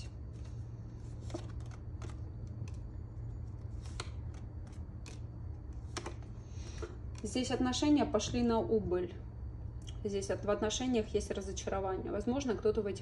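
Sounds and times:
cards shuffling: 0:00.0 - 0:07.2.

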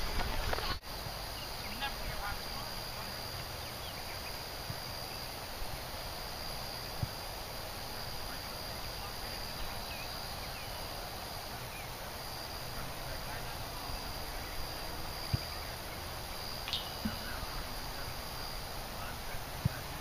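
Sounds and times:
high insect drone: 0:00.0 - 0:20.0.

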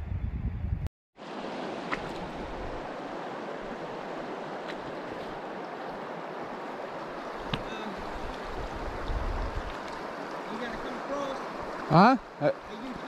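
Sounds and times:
river flowing: 0:01.2 - 0:13.0.

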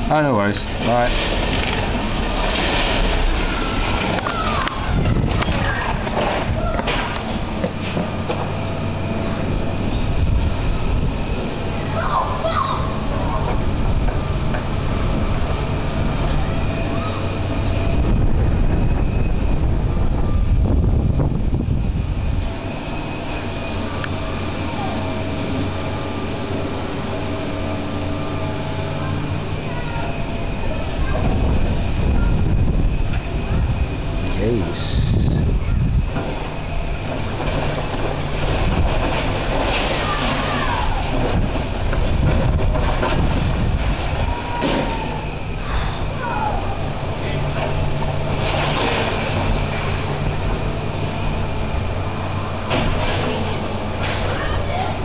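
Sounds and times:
excavator engine running: 0:00.0 - 0:55.0
brickwork crashing and falling: 0:01.1 - 0:04.4.

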